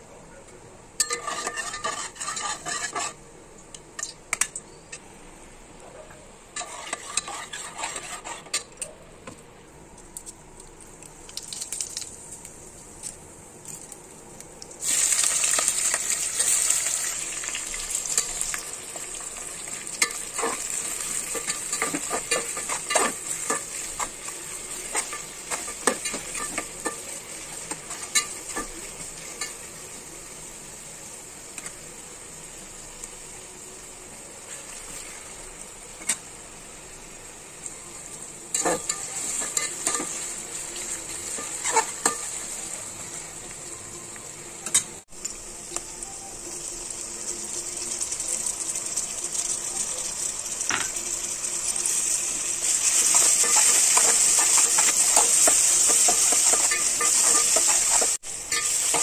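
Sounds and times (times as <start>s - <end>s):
hot oil sizzling: 0.9s - 5.7s, 6.4s - 8.8s, 10.1s - 59.0s
spatula scraping metal pot: 1.0s - 3.2s, 6.6s - 8.7s.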